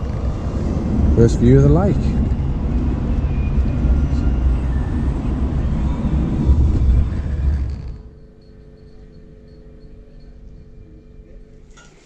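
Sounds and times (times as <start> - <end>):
road and engine noise in a van: 0.0 - 8.2
faint steady hum: 0.0 - 12.0.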